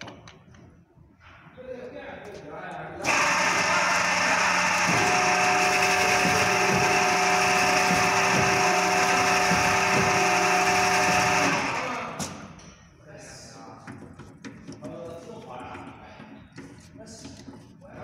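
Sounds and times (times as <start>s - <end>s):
honing machine whirring and grinding: 3.0s - 12.3s.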